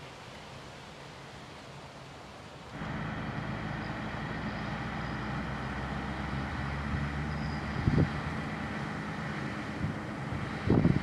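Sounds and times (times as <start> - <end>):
tractor diesel engine running: 2.8 - 11.0.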